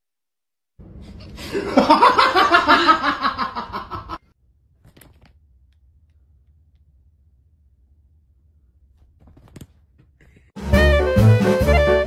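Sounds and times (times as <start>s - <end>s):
person laughing: 1.4s - 4.2s.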